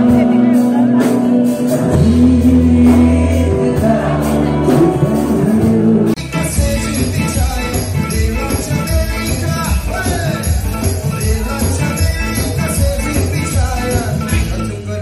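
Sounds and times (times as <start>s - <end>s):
drum beat: 0.0s - 14.7s
bass line: 0.0s - 15.0s
live band music: 0.0s - 15.0s
man singing into microphone: 0.0s - 15.0s.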